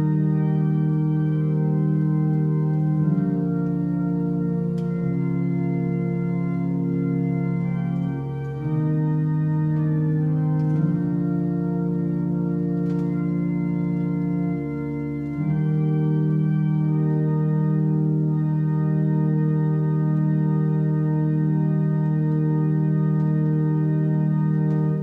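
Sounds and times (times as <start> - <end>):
organ sustained chords: 0.0 - 25.0.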